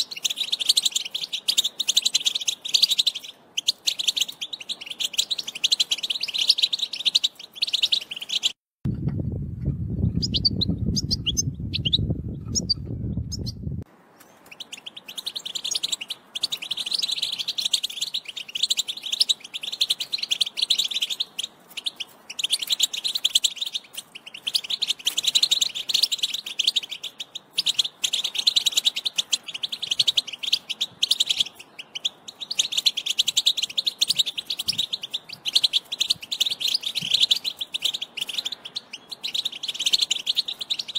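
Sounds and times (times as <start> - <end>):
bird twittering warble: 0.0 - 8.6, 9.7 - 40.9
low rumbling noise: 8.9 - 14.0.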